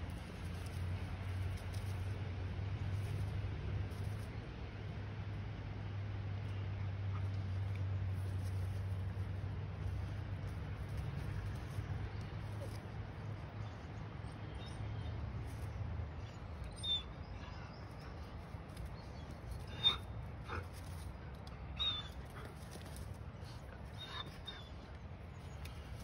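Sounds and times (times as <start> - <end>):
low background rumble: 0.0 - 26.0
dog whimpering: 19.6 - 20.6, 23.9 - 24.8.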